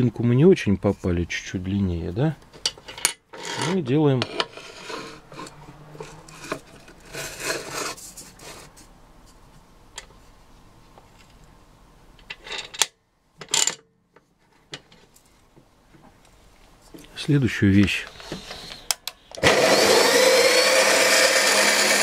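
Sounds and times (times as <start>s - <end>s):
metal profile scraping on steel: 3.3s - 8.8s.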